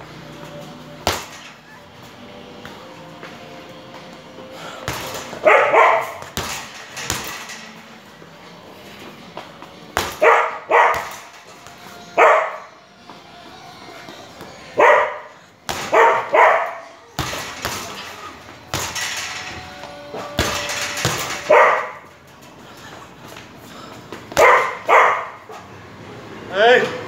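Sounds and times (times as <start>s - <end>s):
punches thudding on heavy bag: 1.0s - 1.6s, 4.8s - 7.6s, 9.9s - 11.7s, 15.7s - 16.3s, 17.2s - 19.4s, 20.2s - 22.0s
dog barking: 5.4s - 6.2s, 10.2s - 11.2s, 12.2s - 12.7s, 14.8s - 17.0s, 21.5s - 22.1s, 24.4s - 25.6s.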